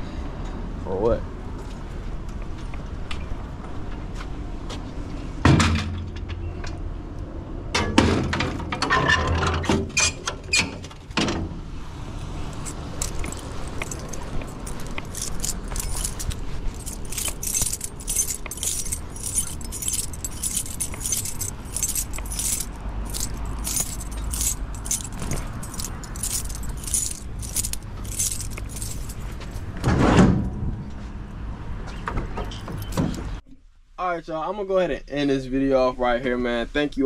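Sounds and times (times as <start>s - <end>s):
low vehicle rumble: 11.0s - 33.4s
keys jingling: 12.2s - 29.6s, 32.6s - 33.3s.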